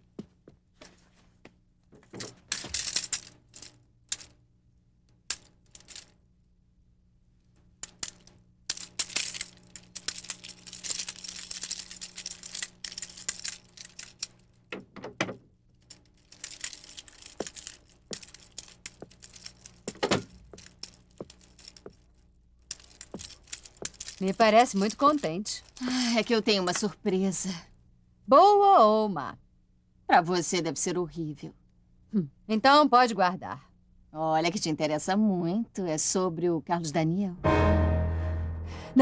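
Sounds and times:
faint steady hum: 0.0 - 37.5
wheelchair frame rattling: 2.0 - 3.2, 16.2 - 22.0, 22.7 - 26.2.

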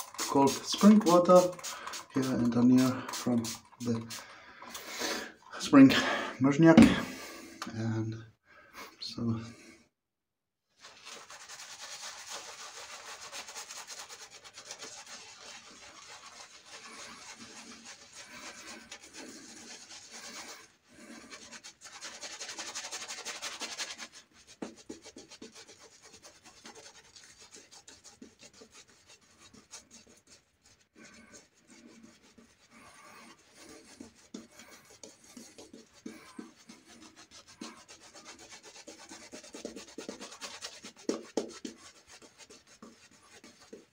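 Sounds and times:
shaving brush swirling lather: 0.0 - 6.2, 10.8 - 43.9.

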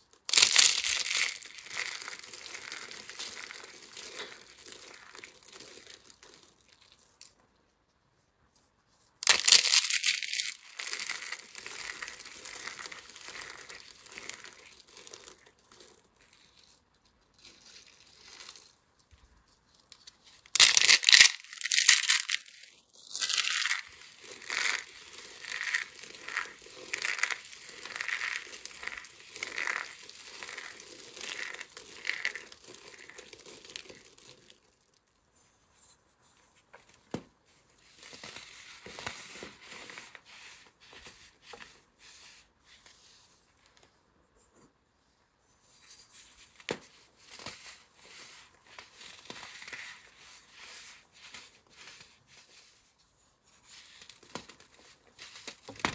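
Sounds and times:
dried petals crackling when crushed: 0.2 - 7.3, 9.2 - 18.8, 19.4 - 35.0.

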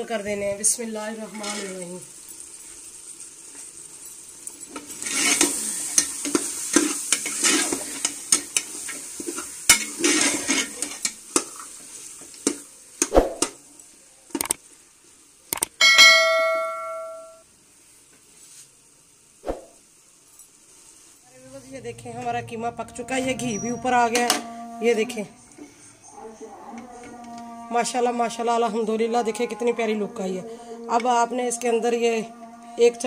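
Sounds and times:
meat sizzling in a pot: 0.0 - 21.4
metal spoon scraping a pot: 1.3 - 1.8, 4.8 - 8.4, 9.2 - 11.6
spoon clanging on pot: 15.8 - 17.4.

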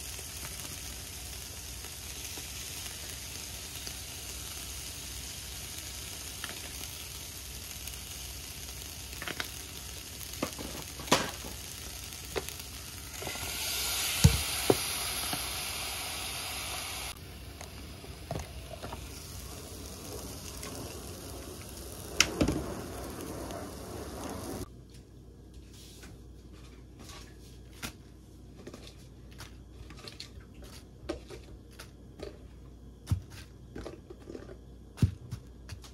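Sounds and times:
chicken sizzling: 0.0 - 24.7.

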